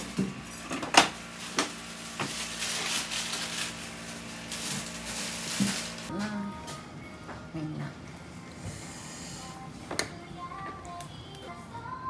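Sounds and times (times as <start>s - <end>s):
paper towels crackling and rustling: 1.2s - 6.1s.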